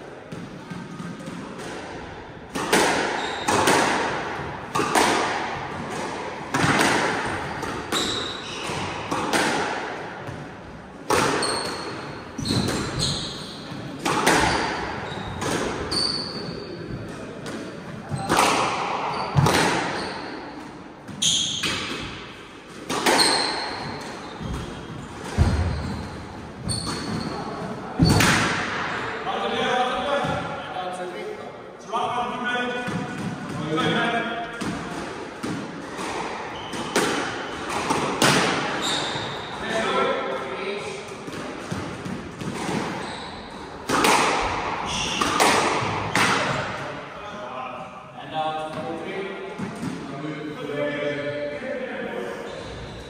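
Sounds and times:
squash ball hitting racquets and walls: 0.0 - 30.7, 32.8 - 47.4, 48.6 - 50.2
shoes squeaking on wooden floor: 3.1 - 3.7, 7.4 - 9.0, 11.4 - 16.9, 23.0 - 28.2, 36.0 - 37.7, 38.7 - 39.9, 42.6 - 43.7.

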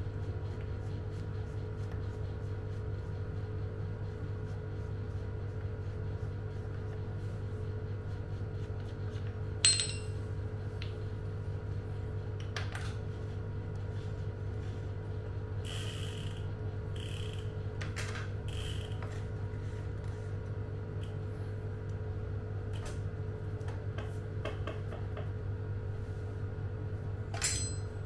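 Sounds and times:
metal tool clinking: 9.6 - 10.2.

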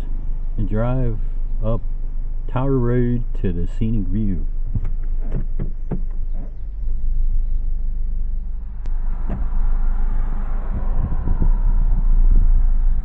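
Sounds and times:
car engine and road rumble: 0.0 - 13.0
short knocks: 4.7 - 6.5.

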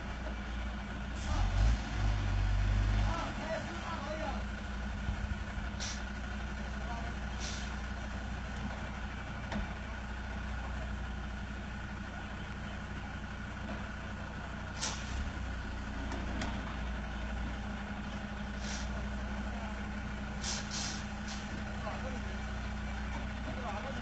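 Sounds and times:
diesel truck engine rumbling: 0.0 - 24.0
air brake hisses: 5.8 - 6.1, 7.4 - 7.8, 14.8 - 15.2, 18.6 - 19.0, 20.4 - 21.5.

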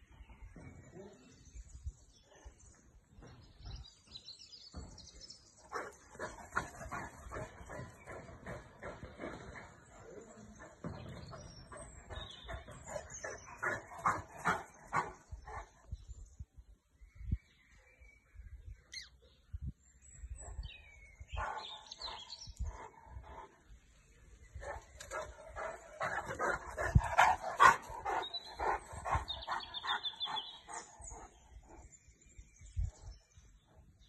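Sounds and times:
large dog barking: 21.4 - 22.9, 24.6 - 31.4.

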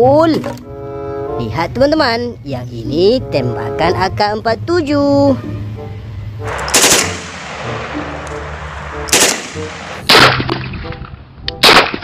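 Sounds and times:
gunshots with echo: 6.5 - 10.8, 11.6 - 12.0.

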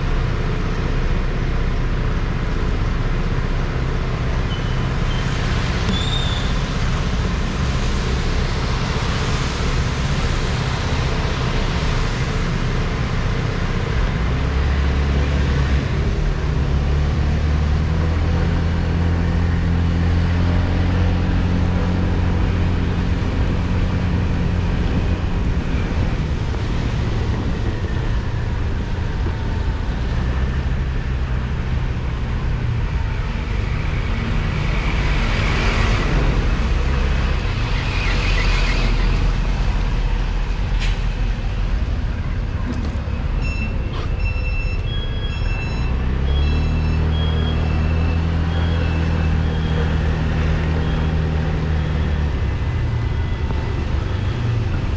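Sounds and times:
vehicle engine hum: 0.0 - 54.9
road hiss on wet road: 5.0 - 13.6, 33.8 - 41.8
high squeak: 43.4 - 47.8.

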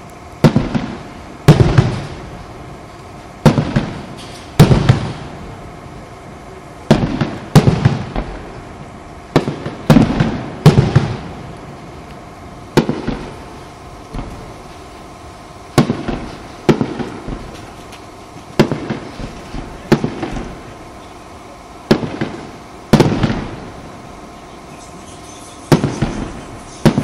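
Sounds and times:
firework shells bursting: 9.3 - 27.0.

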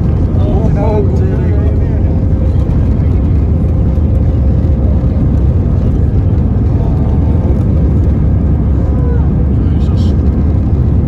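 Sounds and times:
jet engines and airflow rumble: 0.0 - 11.0.

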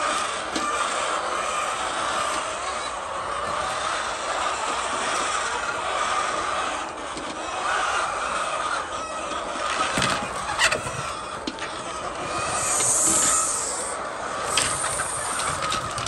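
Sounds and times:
chickens clucking: 0.0 - 16.0
high hiss: 12.5 - 15.6.

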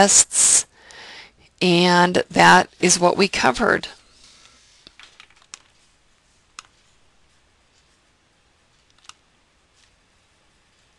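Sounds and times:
computer mouse clicks: 6.6 - 6.8, 8.8 - 9.2.

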